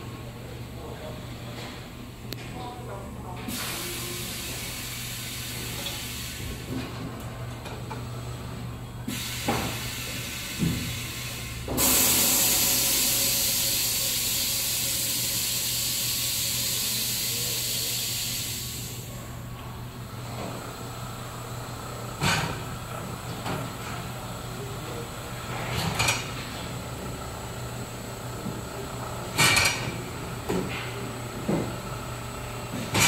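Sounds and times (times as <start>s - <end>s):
loud even hiss: 9.1s - 19.0s
machine humming: 11.6s - 16.2s.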